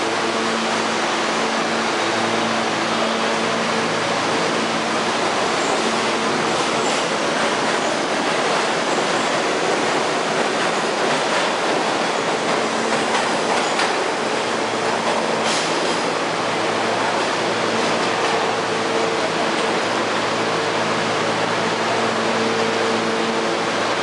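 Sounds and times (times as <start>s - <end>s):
subway train wheel-on-rail noise: 0.0s - 24.0s
wheels clacking over rail joints: 5.2s - 16.2s.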